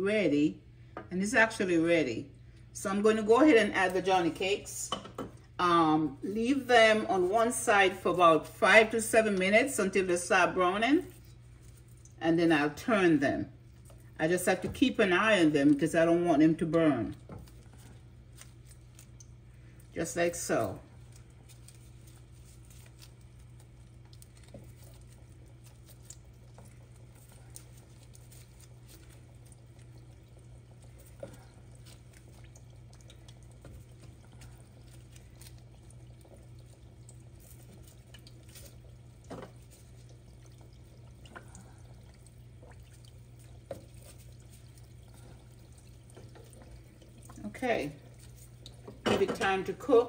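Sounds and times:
steady low hum: 0.0 - 50.0
dough frying in oil: 2.7 - 50.0
oil popping: 13.6 - 50.0.

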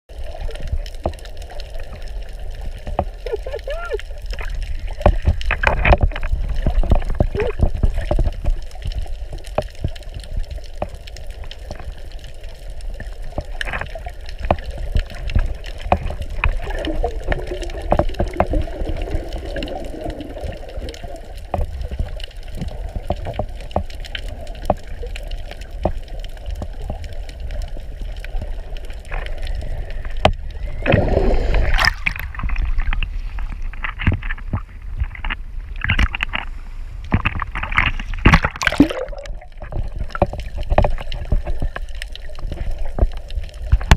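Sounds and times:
underwater rumble of moving water: 0.1 - 43.9
breaking waves splashing: 30.7 - 33.4, 37.4 - 41.9.

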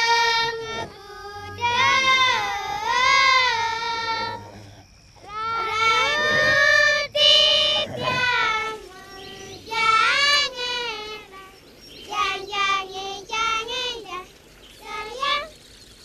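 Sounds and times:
children singing a high chant: 0.0 - 4.6, 5.2 - 15.5.

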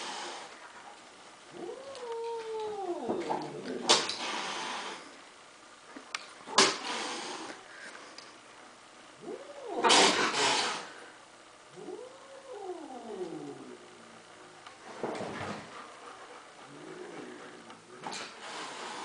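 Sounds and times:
cat hissing: 0.0 - 0.5, 3.8 - 5.1, 6.5 - 7.6, 9.2 - 11.0, 16.7 - 19.0
cat spitting: 6.5 - 7.3, 9.8 - 10.8.

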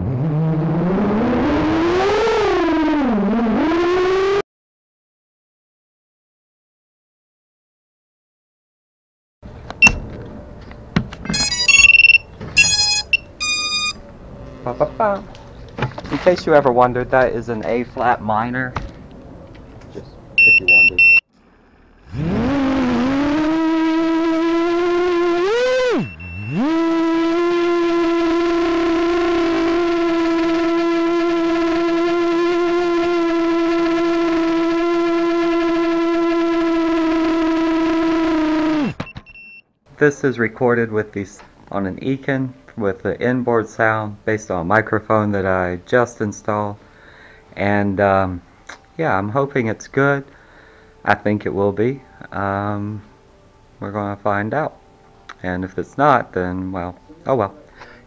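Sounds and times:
electronic beep tones: 11.3 - 14.0, 20.4 - 21.2, 25.8 - 26.7
loud steady whine: 21.6 - 38.9.

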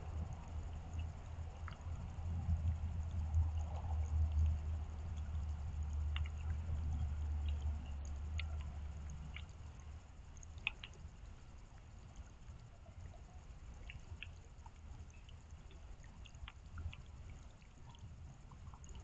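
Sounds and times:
low steady rumble: 0.0 - 19.0
rainwater dripping on surfaces: 0.0 - 19.0.

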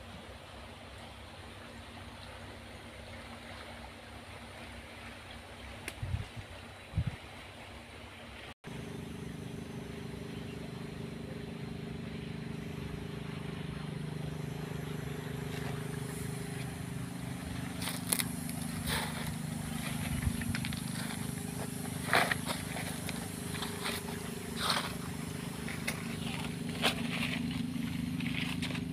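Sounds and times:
motor droning: 8.6 - 28.9
footsteps crunching on pebbles: 14.4 - 28.9.

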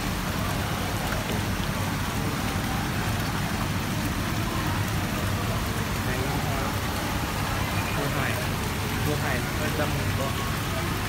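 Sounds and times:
aerated water splashing and bubbling: 0.0 - 11.0.

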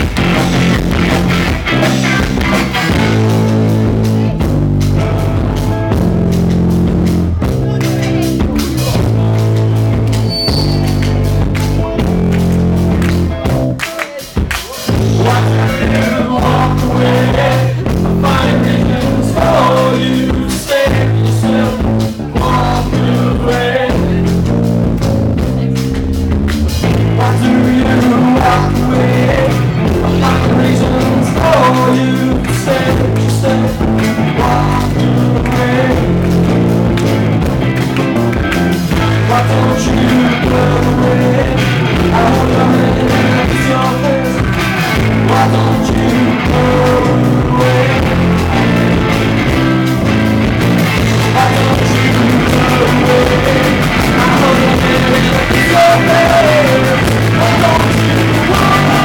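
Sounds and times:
rock band playing: 0.0 - 59.0
man singing: 13.8 - 24.5, 26.8 - 36.6, 38.7 - 49.7, 50.9 - 59.0.

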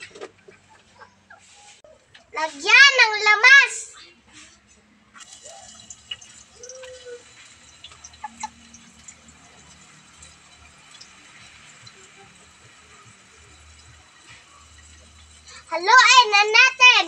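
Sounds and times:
food sizzling in oil: 5.2 - 16.6.

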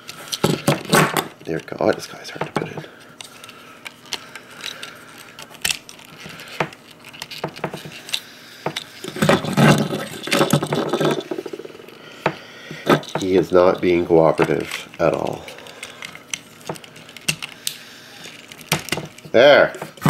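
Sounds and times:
plastic parts clicking and rattling: 0.0 - 11.8, 12.8 - 20.0
plastic scraping and clicking: 12.8 - 20.0.

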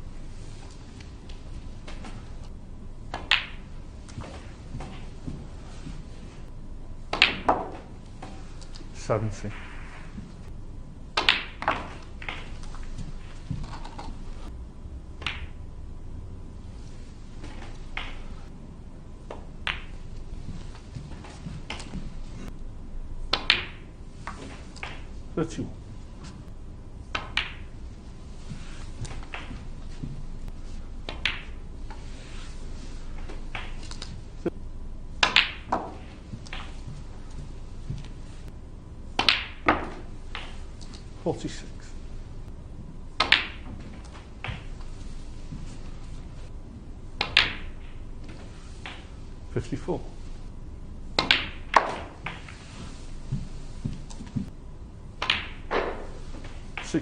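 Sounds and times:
quiet hum: 0.0 - 57.0
snooker balls clicking: 0.6 - 14.5, 15.2 - 15.6, 17.2 - 18.5, 19.2 - 22.6, 23.3 - 34.6, 35.2 - 46.5, 47.1 - 50.5, 51.1 - 57.0
cue tip striking ball: 3.1 - 6.3, 7.1 - 8.4, 9.5 - 10.4, 11.1 - 14.2, 15.2 - 15.6, 17.4 - 18.5, 19.3 - 22.5, 23.3 - 25.1, 27.1 - 27.8, 28.4 - 30.2, 31.0 - 34.5, 35.2 - 38.5, 39.2 - 41.0, 43.2 - 46.1, 47.2 - 49.1, 51.2 - 53.0, 55.2 - 56.9.

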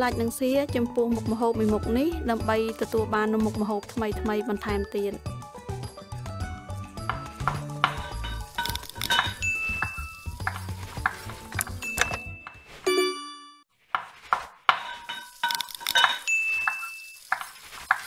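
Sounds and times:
music: 0.0 - 12.7
utensils clinking on dishes: 7.5 - 13.2, 14.7 - 18.0
bell-like ding: 9.4 - 10.2, 11.8 - 13.6, 16.2 - 17.2.

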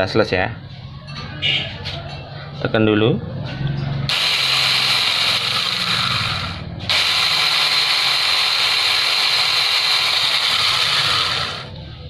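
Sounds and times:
mini chainsaw whining: 4.1 - 11.8.

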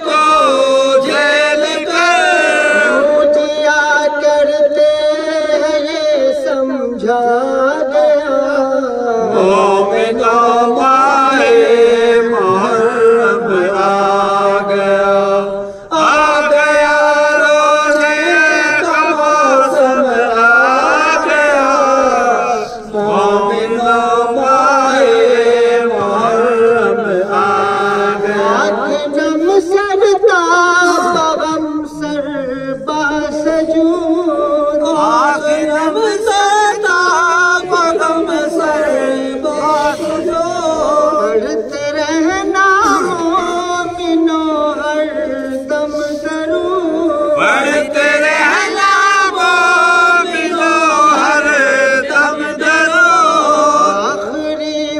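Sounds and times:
men chanting a lament: 0.0 - 54.9.

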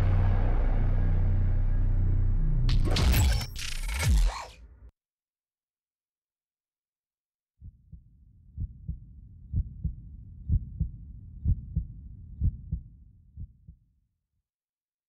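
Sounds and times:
low rumble: 0.0 - 3.2
heartbeat thumps: 8.6 - 13.8.

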